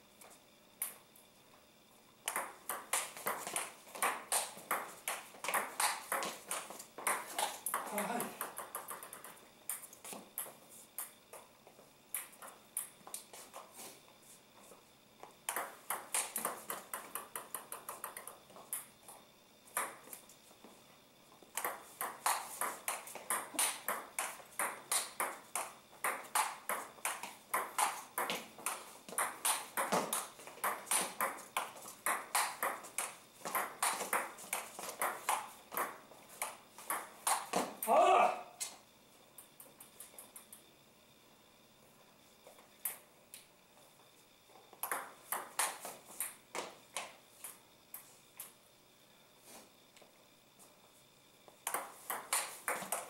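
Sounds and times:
table tennis ball clicking: 2.3s - 11.1s, 21.6s - 37.6s.

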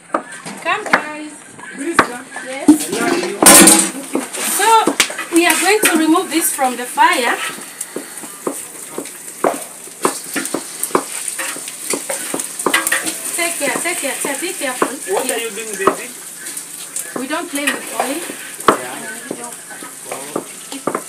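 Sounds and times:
fish sizzling in hot oil: 3.4s - 21.0s
spoon scraping a pot: 4.4s - 8.2s, 11.1s - 14.9s.

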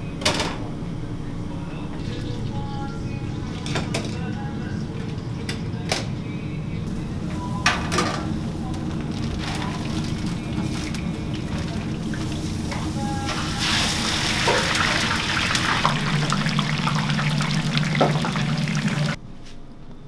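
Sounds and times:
fries sizzling in deep fryer: 7.2s - 19.2s.

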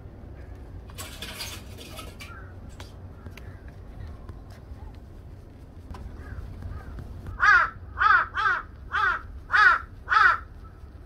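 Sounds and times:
crow cawing: 6.2s - 10.5s.

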